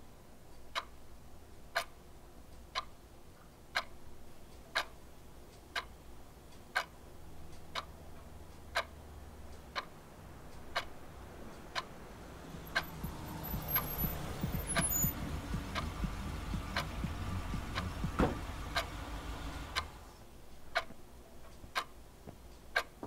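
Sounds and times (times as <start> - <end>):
clock ticking: 0.6 - 3.0, 3.6 - 20.0, 20.6 - 23.0
vehicle engine rumble: 10.2 - 20.2.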